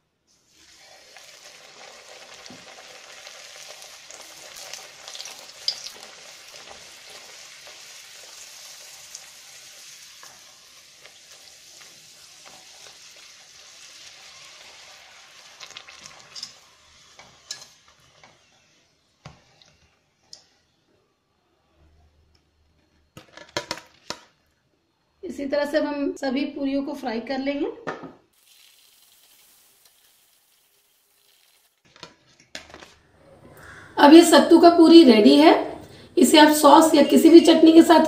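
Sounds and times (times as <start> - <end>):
deep-frying sizzle in oil: 0.3 - 20.6, 28.3 - 33.0.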